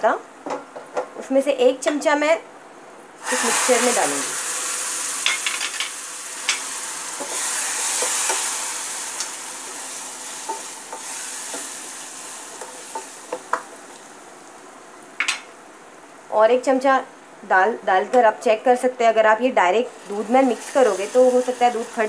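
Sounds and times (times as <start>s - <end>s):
ghee sizzling: 3.2s - 15.2s, 19.6s - 22.0s.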